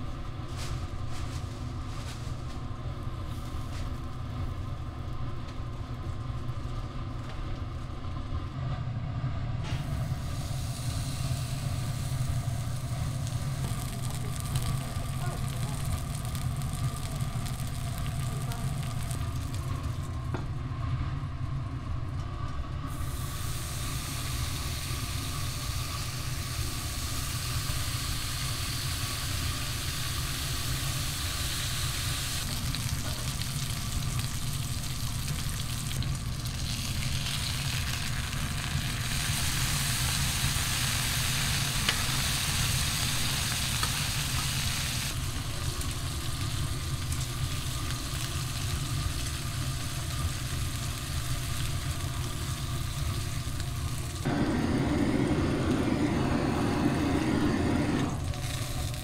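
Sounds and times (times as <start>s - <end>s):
food sizzling: 9.8s - 20.3s, 22.9s - 59.0s
steady low hum: 49.6s - 59.0s.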